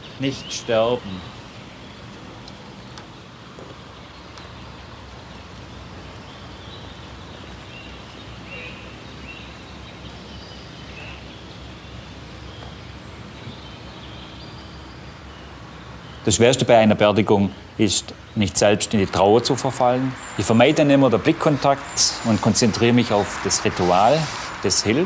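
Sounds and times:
faint bird chirps: 0:05.7 - 0:16.4.

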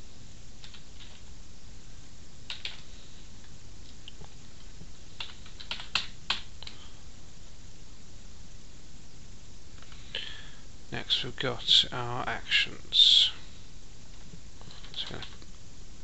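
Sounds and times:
keyboard keystrokes: 0:02.5 - 0:02.8, 0:05.2 - 0:06.8.

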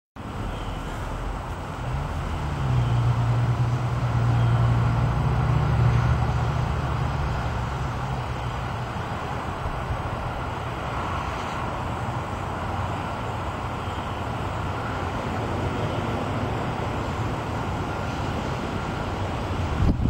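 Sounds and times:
strong wind on microphone: 0:14.8 - 0:20.0.

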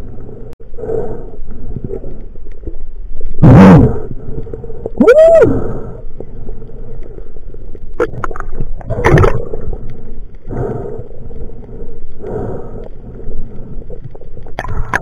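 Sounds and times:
underwater gurgling burst: 0:07.9 - 0:10.8, 0:13.6 - 0:15.0
knocks underwater: 0:08.0 - 0:09.5.

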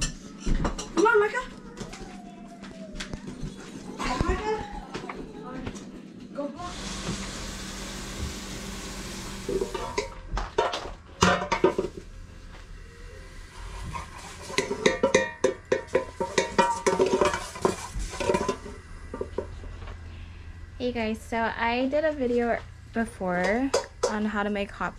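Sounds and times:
gas burner hiss: 0:06.6 - 0:10.2, 0:11.5 - 0:24.9
utensil clacking against metal pot: 0:13.9 - 0:19.5, 0:23.4 - 0:24.4.

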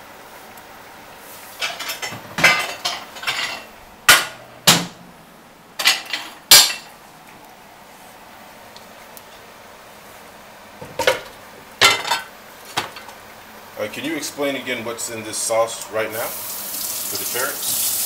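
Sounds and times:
pots and pans clattering: 0:01.6 - 0:05.0, 0:05.8 - 0:06.9, 0:10.8 - 0:13.1.

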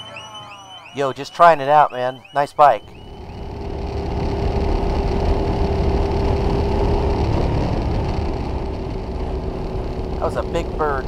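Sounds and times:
steady hum: 0:02.6 - 0:11.0
motorcycle engine cruising: 0:02.8 - 0:11.0
wind rush: 0:03.1 - 0:11.0.

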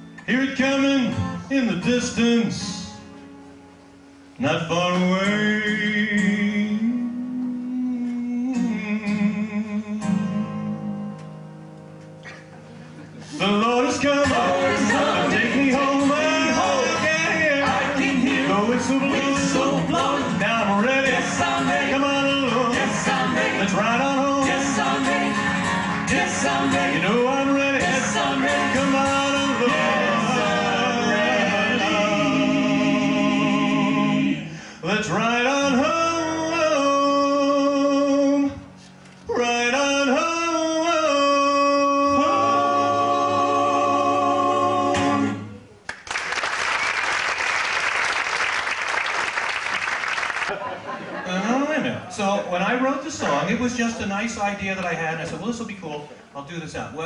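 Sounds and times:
group singing in close harmony: 0:13.3 - 0:38.1, 0:39.3 - 0:45.6.

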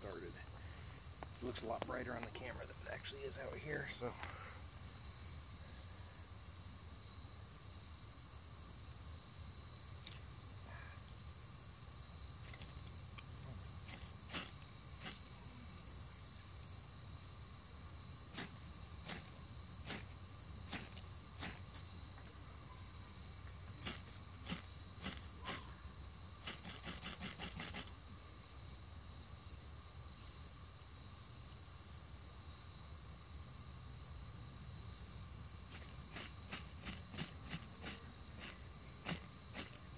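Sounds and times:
crickets trilling: 0:00.0 - 0:39.9
spark striker scraping: 0:26.4 - 0:28.0.

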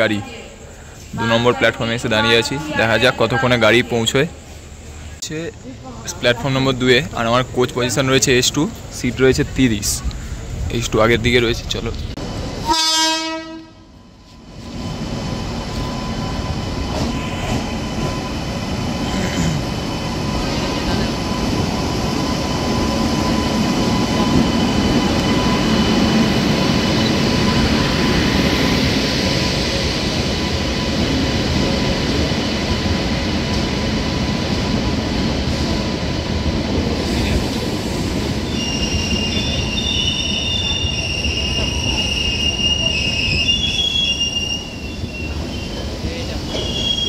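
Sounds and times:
train wheels rumbling: 0:04.3 - 0:47.0
wheel and brake squeal: 0:38.5 - 0:47.0.

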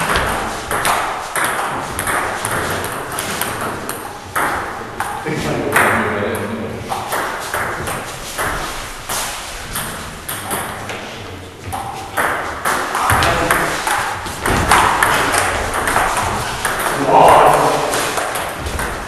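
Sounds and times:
ball bouncing on table: 0:00.0 - 0:05.2, 0:09.7 - 0:19.0
table tennis ball on bats: 0:00.0 - 0:19.0.

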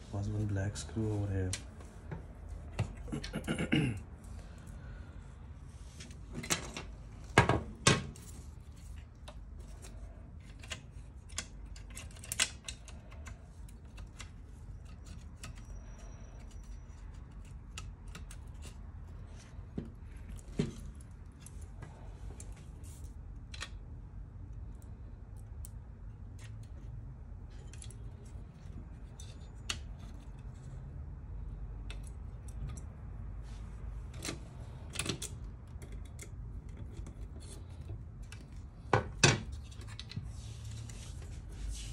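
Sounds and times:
low steady hum: 0:00.0 - 0:41.9
plastic parts clicking and rattling: 0:06.0 - 0:21.7, 0:27.5 - 0:30.8.

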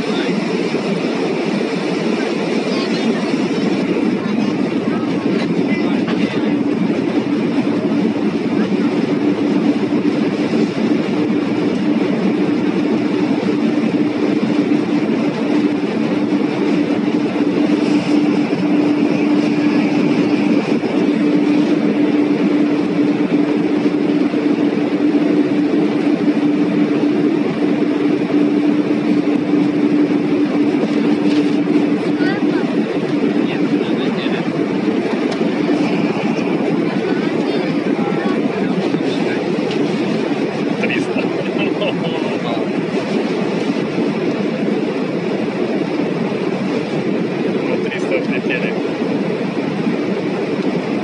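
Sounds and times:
constant low hum: 0:00.0 - 0:51.0
jet engines at takeoff power: 0:00.0 - 0:51.0.

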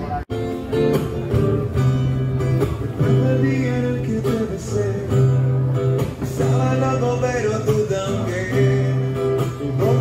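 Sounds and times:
acoustic guitar strumming: 0:00.0 - 0:10.0.

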